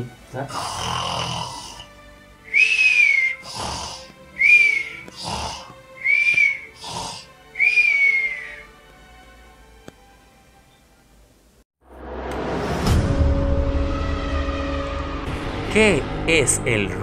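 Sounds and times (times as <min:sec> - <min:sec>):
cartoon snort-like snoring: 0:00.5 - 0:02.0, 0:02.8 - 0:07.9
whistled breath: 0:02.5 - 0:03.6, 0:04.4 - 0:08.8.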